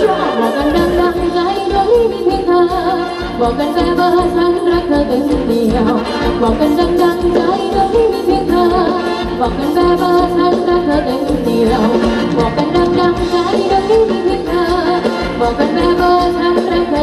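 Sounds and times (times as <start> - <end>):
person singing: 0.0 - 17.0
steady drum beat: 11.7 - 14.1.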